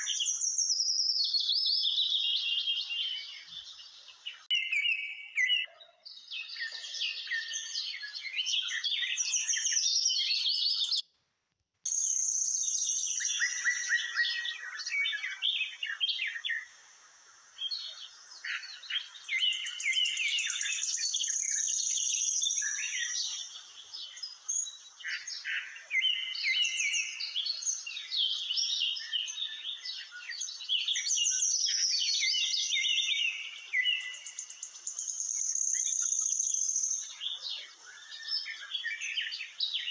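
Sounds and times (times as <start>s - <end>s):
many birds chirping: 0.0s - 11.0s, 11.9s - 39.9s.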